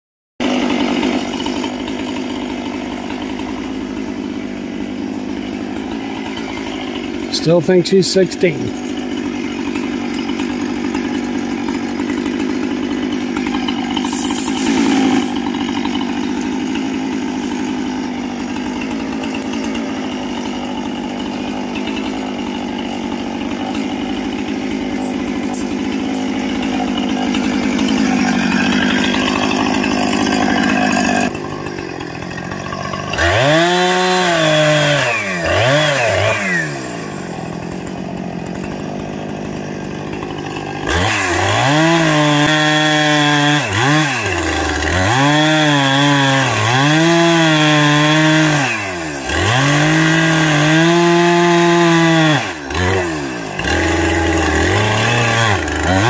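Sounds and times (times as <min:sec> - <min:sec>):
chainsaw running and revving: 0:00.4 - 0:56.0.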